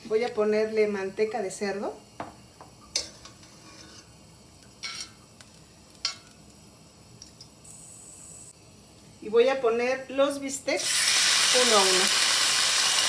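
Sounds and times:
faint sizzle: 0.0 - 13.0
metal spoon scraping a pan: 2.9 - 4.1.

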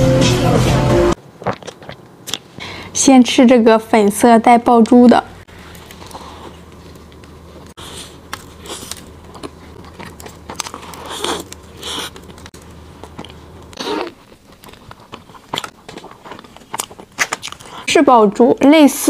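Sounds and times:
chewing crunchy pastry: 1.4 - 2.5, 5.6 - 17.9
soft mouth sounds: 1.4 - 2.5, 7.8 - 12.4, 13.1 - 17.9.

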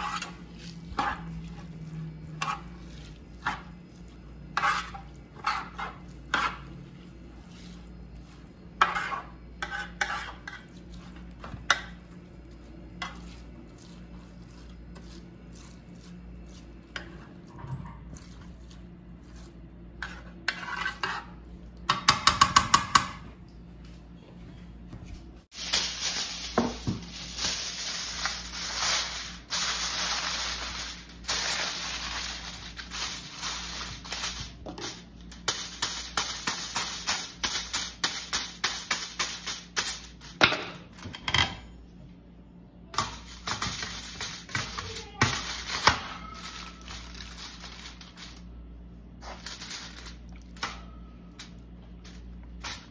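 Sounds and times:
spatula scraping rice in tray: 2.3 - 11.8, 18.2 - 21.4
aluminium foil crinkling: 25.5 - 40.3, 43.2 - 48.5, 49.2 - 52.9.

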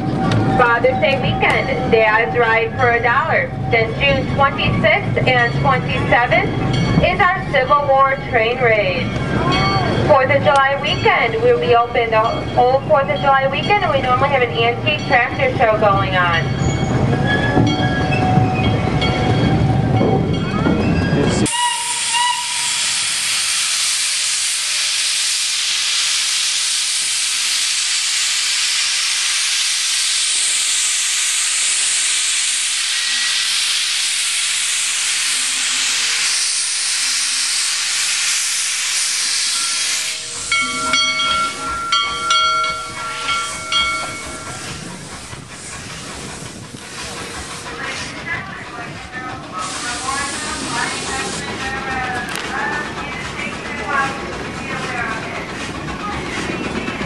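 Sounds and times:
steam locomotive venting steam: 0.0 - 57.0
steam whistle short blasts: 21.5 - 29.8.

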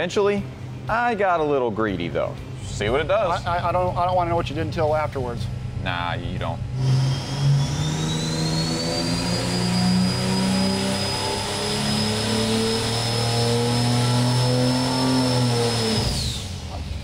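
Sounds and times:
engine revving at full throttle: 6.6 - 17.0
high turbocharger whistle: 6.7 - 16.8.

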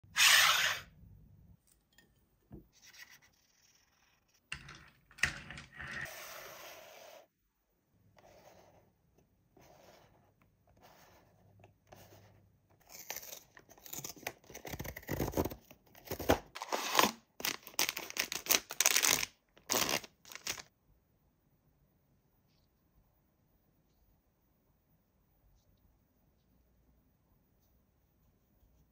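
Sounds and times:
packaging tearing and rustling: 13.0 - 20.7.

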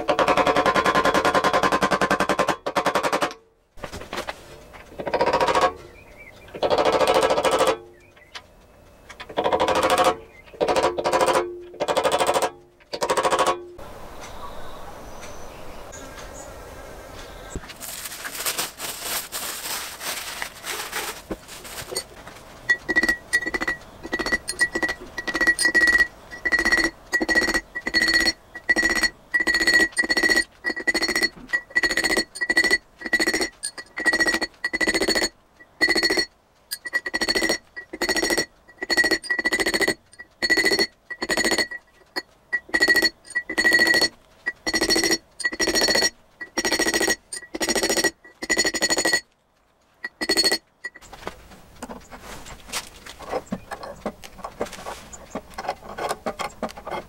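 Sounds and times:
rustling: 3.8 - 5.0, 17.2 - 48.5, 49.3 - 57.0
mallet tapping steel drift: 22.7 - 49.2, 50.0 - 51.0.

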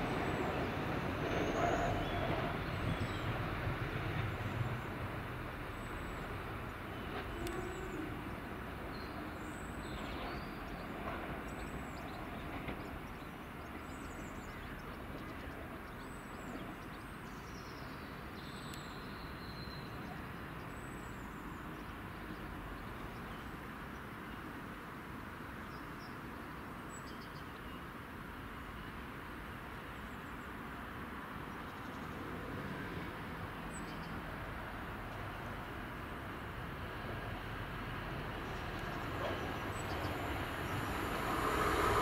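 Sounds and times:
diesel train engine: 34.3 - 42.0.

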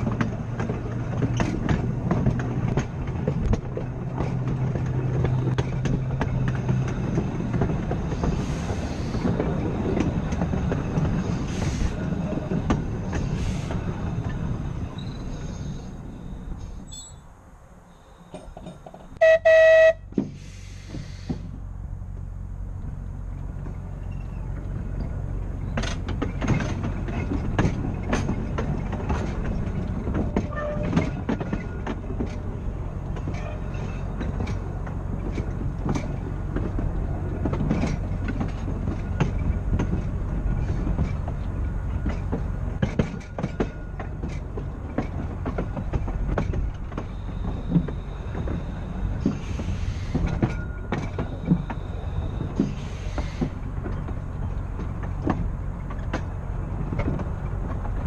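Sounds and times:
wheel clicks over rail joints: 0.0 - 15.1, 22.8 - 58.0
tram rolling on rails: 0.0 - 58.0
tram horn blasts: 19.2 - 20.2.

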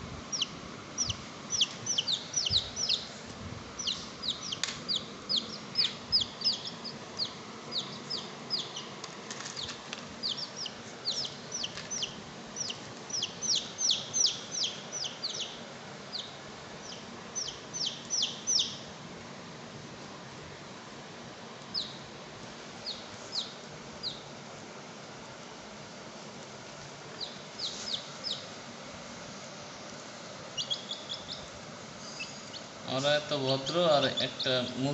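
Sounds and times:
baby chick peeping: 0.0 - 19.0, 21.6 - 22.2, 22.8 - 24.4, 27.1 - 28.6, 30.0 - 34.9.

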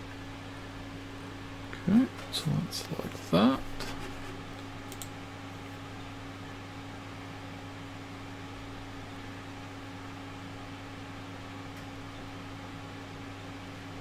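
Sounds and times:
low hum with faint hiss: 0.0 - 14.0.

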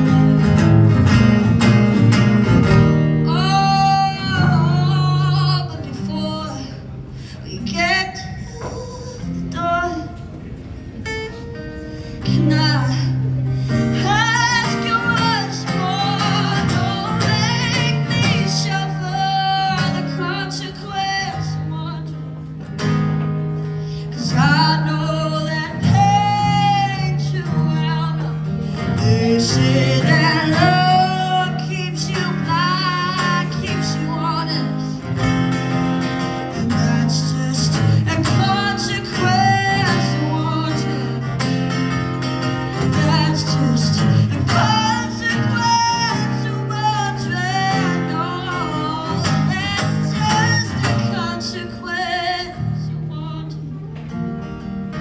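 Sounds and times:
acoustic guitar chords: 0.0 - 55.0
woman singing into a microphone: 3.3 - 6.8, 12.2 - 13.3, 14.0 - 22.2, 24.2 - 28.4.

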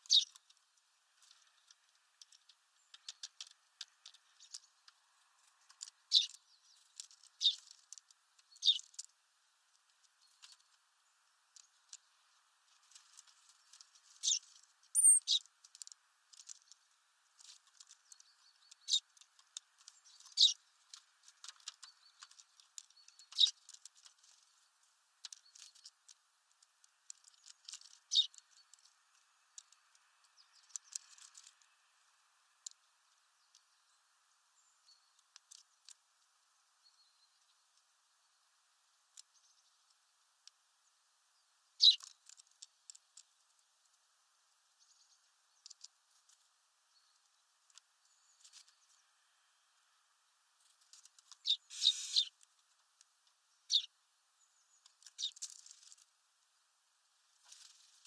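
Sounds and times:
short high bird chirp: 0.0 - 0.3, 6.1 - 6.4, 8.6 - 8.8, 15.0 - 15.4, 20.4 - 20.6, 41.8 - 42.0, 51.4 - 52.4, 53.7 - 53.9
birds pecking at seed: 0.0 - 58.0.

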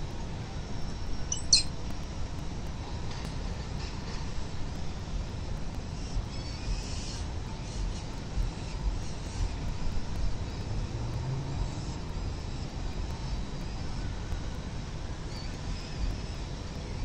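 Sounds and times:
low outdoor rumble: 0.0 - 17.0
falcon chicks chirping: 1.3 - 1.7.

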